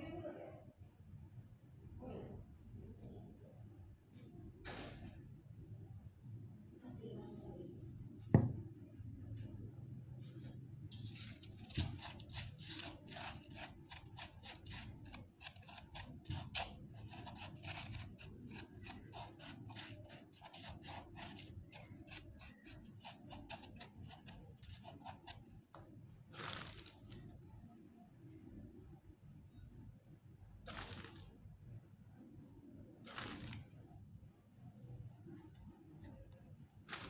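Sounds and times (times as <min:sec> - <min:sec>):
foam and moss crackling: 0:30.7 - 0:31.4.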